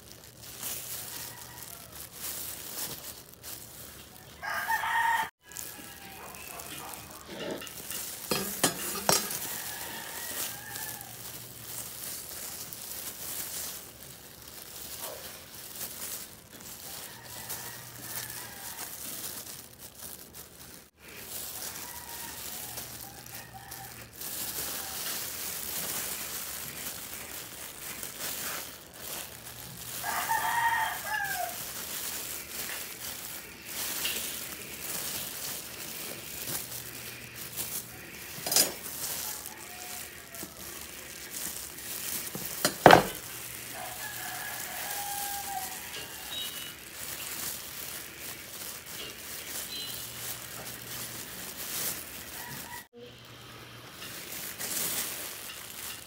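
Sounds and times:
rooster crowing: 0.9 - 2.5, 4.1 - 7.7, 8.4 - 11.8, 16.6 - 19.5, 21.3 - 26.2, 28.3 - 47.9, 51.6 - 53.1.

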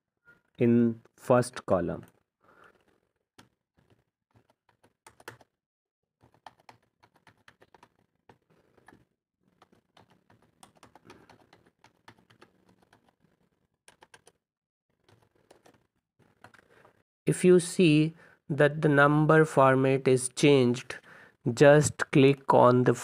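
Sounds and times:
faint keyboard typing: 2.0 - 5.5, 6.2 - 14.4, 15.0 - 17.0.

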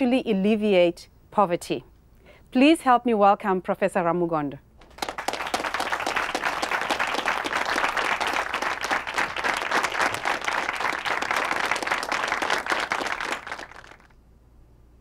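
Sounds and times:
audience applauding: 4.8 - 14.1.

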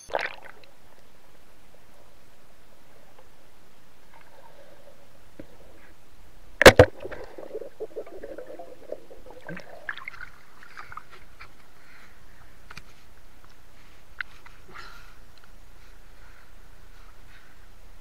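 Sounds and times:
underwater rustling: 0.1 - 11.8.

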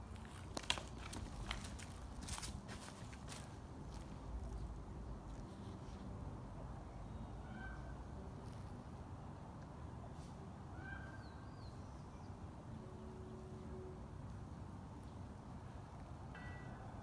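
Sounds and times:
faint bird calls: 7.4 - 8.0.

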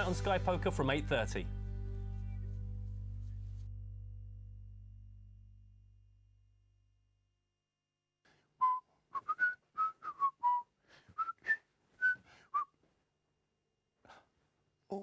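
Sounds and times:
man whistling a tune: 8.6 - 12.8.

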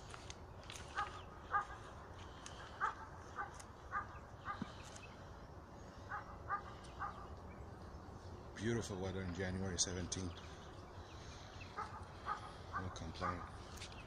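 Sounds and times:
dog barking: 1.0 - 1.9, 2.8 - 4.7, 6.1 - 7.3, 11.8 - 13.6.

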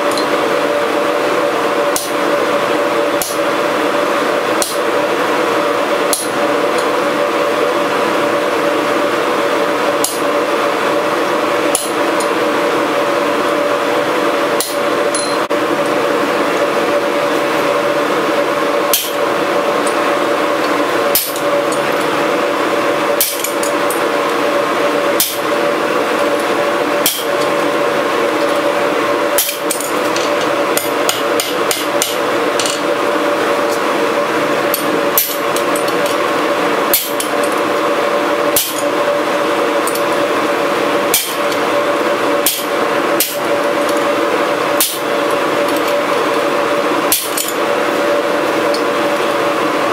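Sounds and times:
forge roaring: 0.0 - 49.9
hammer striking steel on an anvil: 14.6 - 15.4, 18.9 - 19.2, 23.2 - 23.7, 27.0 - 27.5, 29.4 - 32.8, 36.9 - 37.3, 38.6 - 38.9, 41.1 - 41.4, 42.5 - 43.4, 44.8 - 45.1, 47.1 - 47.6.

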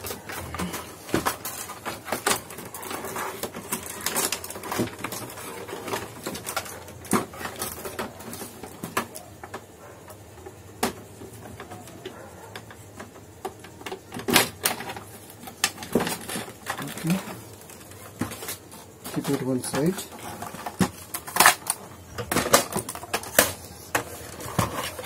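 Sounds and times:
plastic casing clicking and knocking: 10.7 - 25.0.

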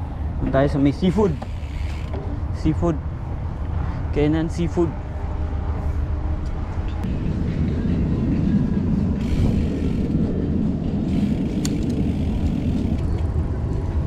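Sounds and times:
bicycle tyres on pavement: 0.4 - 2.4, 9.2 - 14.0
wind buffeting microphone: 4.8 - 14.0.

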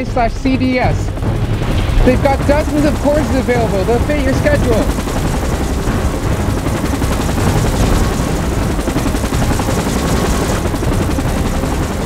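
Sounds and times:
helicopter rotor chopping: 0.0 - 12.0
heavy low rumble: 1.0 - 6.9.

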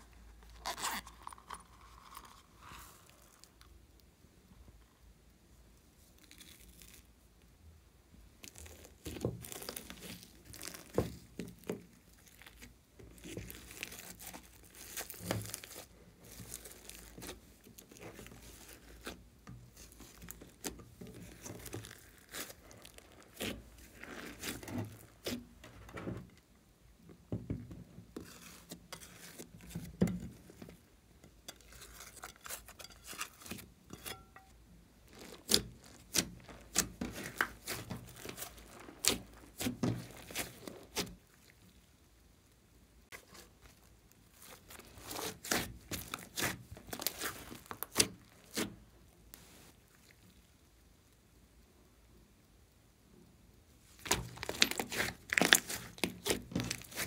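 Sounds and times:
hands kneading sticky slime: 8.3 - 26.2, 27.8 - 41.9, 43.2 - 50.4, 53.9 - 57.0.

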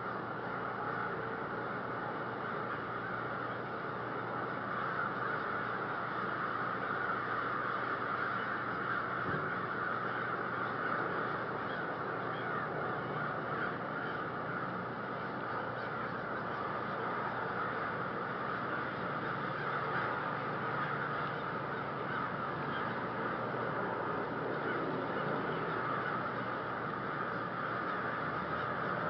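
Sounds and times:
flock of crows cawing: 0.0 - 29.0.

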